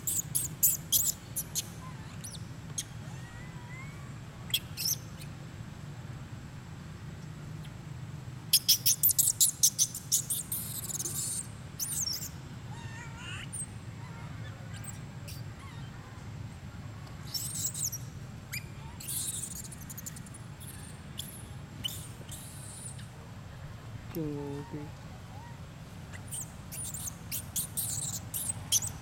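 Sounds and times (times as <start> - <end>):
birds calling: 8.5 - 16.1, 17.2 - 29.0.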